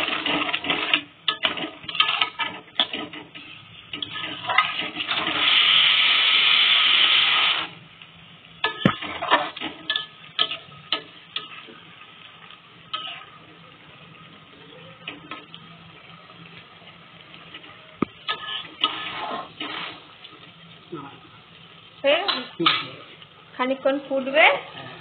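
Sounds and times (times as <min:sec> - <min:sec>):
spatula scraping pan: 0:00.0 - 0:07.7, 0:08.6 - 0:11.8, 0:12.9 - 0:13.4, 0:17.5 - 0:20.2
loud steady hiss: 0:00.0 - 0:25.0
spatula knocking pan: 0:08.6 - 0:11.6.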